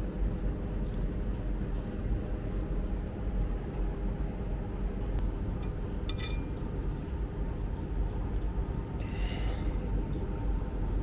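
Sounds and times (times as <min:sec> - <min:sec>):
low background hum: 0:00.0 - 0:11.0
tableware clink: 0:05.6 - 0:06.5.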